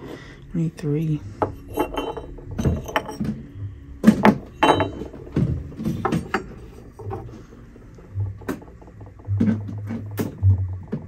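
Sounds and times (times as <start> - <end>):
porcelain figurines clinking: 1.4 - 3.4, 4.2 - 7.4.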